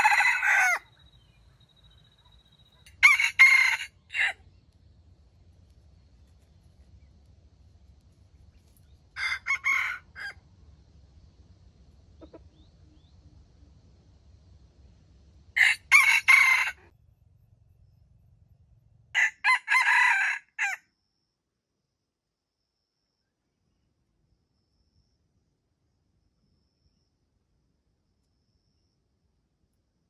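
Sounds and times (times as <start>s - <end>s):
rooster crowing: 0.0s - 1.0s, 2.9s - 4.4s, 9.2s - 10.4s, 15.6s - 16.9s, 19.2s - 20.8s.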